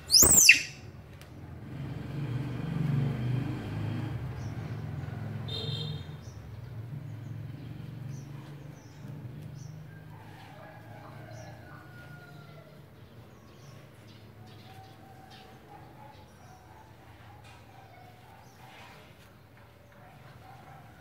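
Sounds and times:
faint high chirps: 0.0 - 0.8
high squeak: 0.0 - 0.8.

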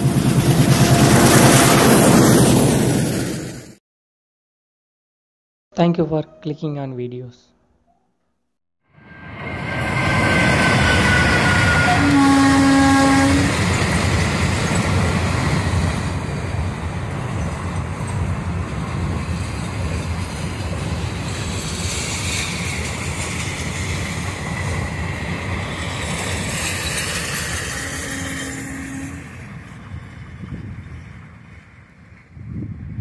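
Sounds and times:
train wheels rumbling on rails: 0.0 - 3.7, 9.2 - 33.0
train horn blast: 10.6 - 13.6, 27.8 - 29.4.

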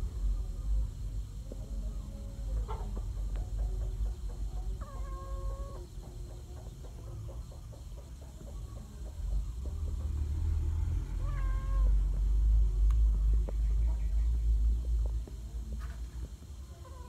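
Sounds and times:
cat meowing: 11.2 - 12.0.

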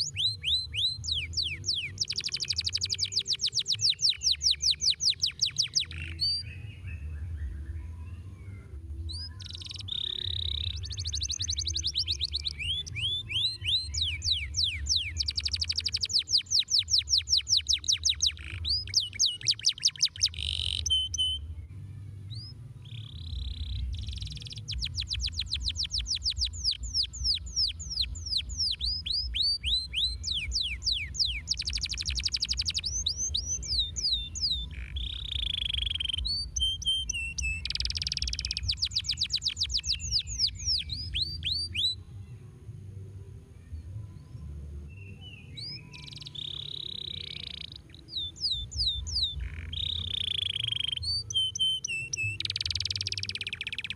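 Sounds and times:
canary singing trills: 0.0 - 21.6, 22.2 - 42.1, 44.4 - 53.9
steady low rumble: 21.4 - 45.2.

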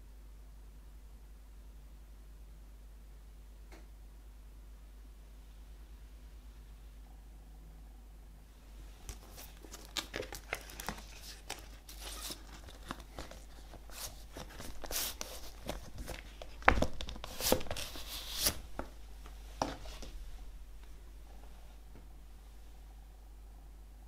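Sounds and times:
record sleeve rustling and scraping: 9.0 - 20.2.

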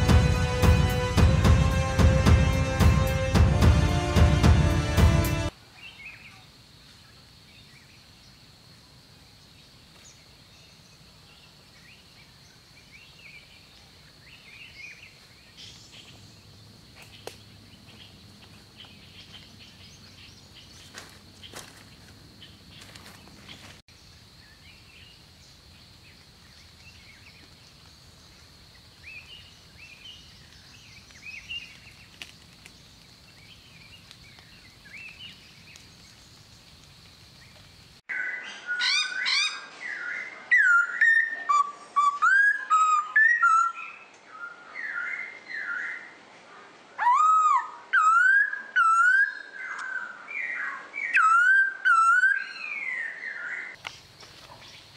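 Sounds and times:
footsteps through leafy undergrowth: 20.5 - 23.8, 29.8 - 37.6, 53.8 - 54.9
twigs snapping: 30.5 - 33.3
bird chirps: 37.4 - 46.0, 47.0 - 54.9.

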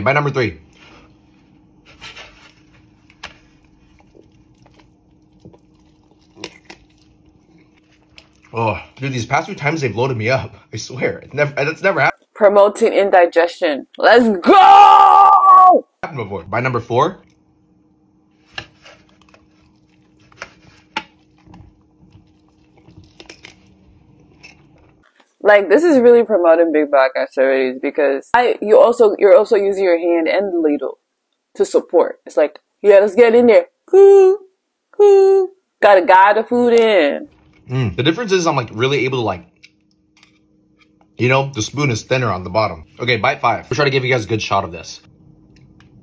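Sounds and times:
low steady hum: 0.0 - 14.5, 16.0 - 46.0
person chewing food: 2.5 - 9.0, 18.6 - 25.2.

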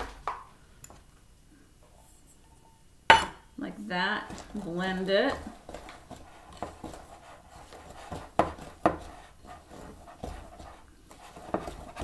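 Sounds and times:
wooden spoon scraping a bowl: 4.2 - 12.0.

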